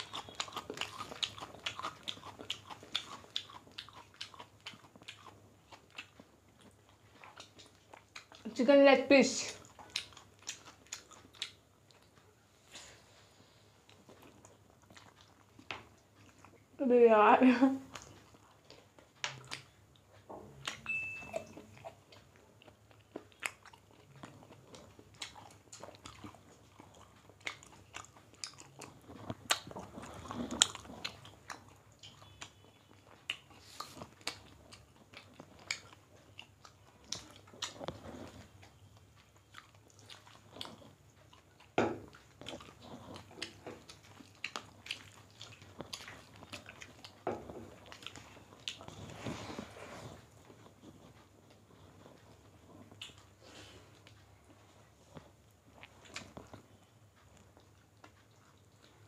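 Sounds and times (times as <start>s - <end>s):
people chewing food: 0.0s - 59.0s
mouth clicks and smacks: 50.5s - 59.0s.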